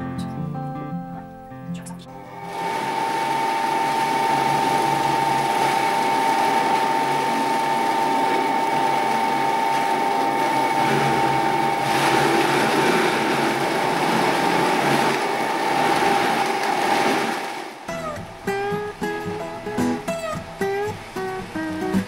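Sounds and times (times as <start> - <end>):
blender motor running: 2.2 - 17.9.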